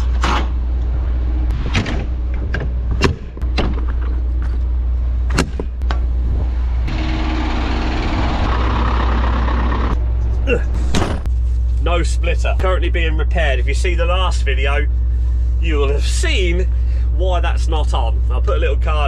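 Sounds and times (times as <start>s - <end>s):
diesel engine idling: 3.9s - 19.0s.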